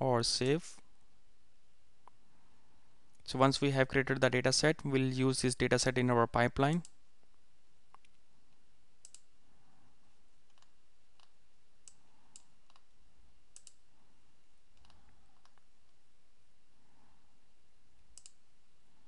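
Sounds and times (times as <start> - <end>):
computer mouse clicking: 9.0 - 9.3, 10.5 - 12.9, 13.5 - 13.8, 14.8 - 15.7, 18.0 - 18.4.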